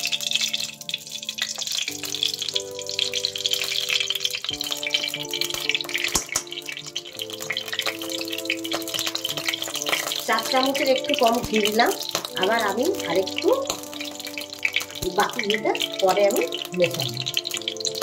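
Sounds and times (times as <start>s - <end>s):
ghee sizzling and crackling: 0.0s - 18.0s
soft background music: 0.0s - 18.0s.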